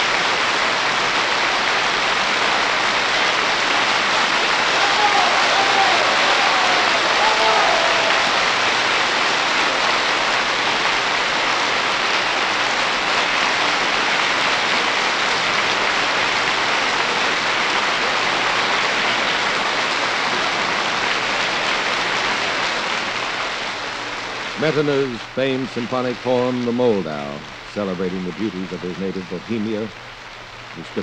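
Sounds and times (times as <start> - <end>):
audience applauding: 3.5 - 10.3.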